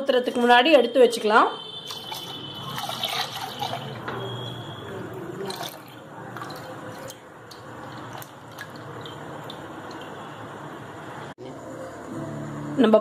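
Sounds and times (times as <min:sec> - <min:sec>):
milk pouring into a metal pot: 0:01.8 - 0:04.0, 0:05.4 - 0:10.2.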